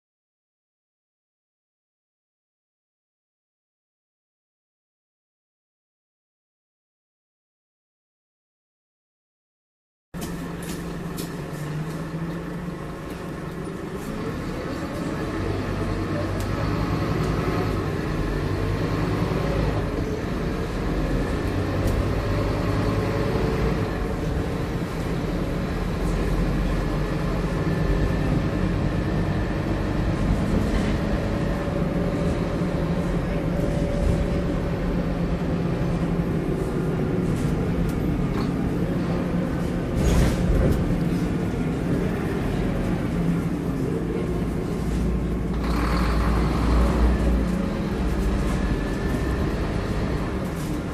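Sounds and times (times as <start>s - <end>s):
bus diesel engine shifting gears: 10.2s - 50.9s
bus body rattles: 18.6s - 50.9s.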